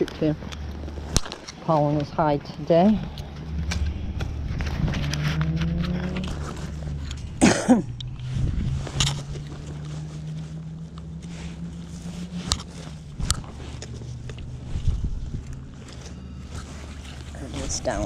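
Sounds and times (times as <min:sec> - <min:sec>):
steady low hum: 0:00.0 - 0:18.0
person coughing: 0:07.4 - 0:08.0.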